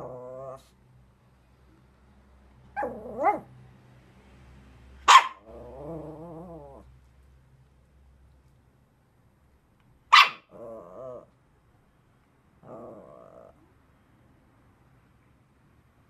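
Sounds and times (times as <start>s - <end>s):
dog barking: 2.8s - 3.5s, 5.0s - 5.5s, 10.1s - 10.6s
dog whining: 5.2s - 6.9s, 12.6s - 13.6s.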